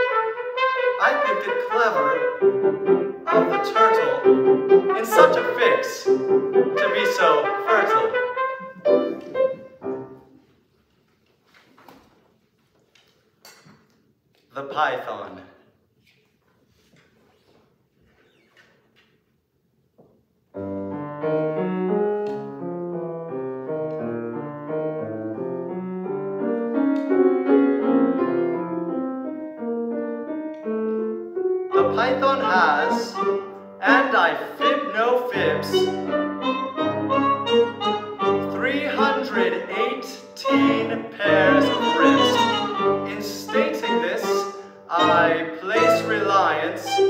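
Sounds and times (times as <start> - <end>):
trumpet playing: 0.0 - 9.8, 31.7 - 47.0
grand piano notes: 0.0 - 10.4, 20.5 - 47.0.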